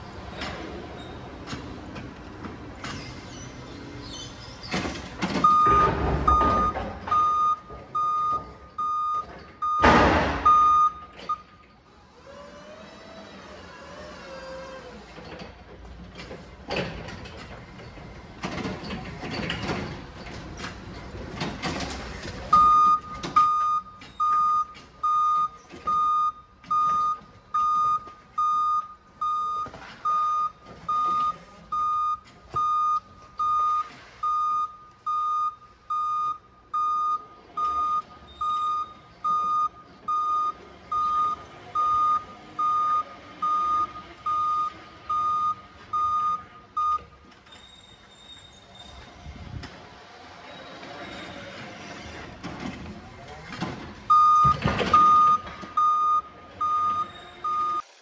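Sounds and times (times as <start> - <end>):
reversing alarm beeping: 5.4 - 14.4, 22.5 - 49.1, 54.0 - 58.0.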